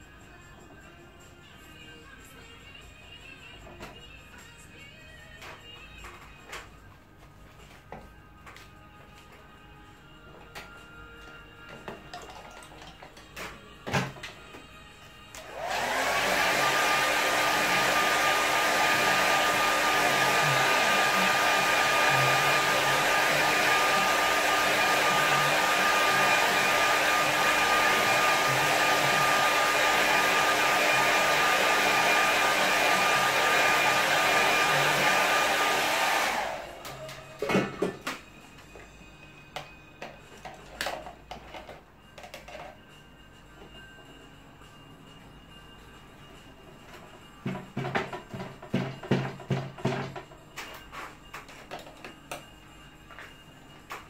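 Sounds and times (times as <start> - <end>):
hair dryer whine and air rush: 15.3 - 38.2, 47.4 - 50.2.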